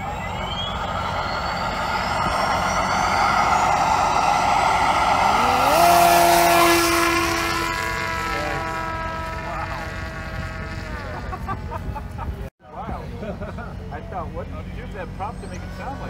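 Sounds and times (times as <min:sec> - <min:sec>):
rising second tone: 0:00.0 - 0:11.2
electric motor and propeller whine: 0:00.0 - 0:12.5, 0:15.1 - 0:16.0.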